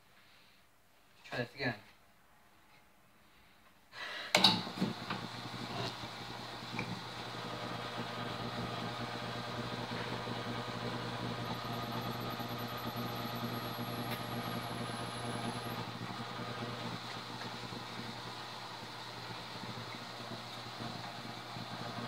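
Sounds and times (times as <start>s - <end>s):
drill press motor running: 4.4s - 22.0s
high whine of drill bit: 4.9s - 22.0s.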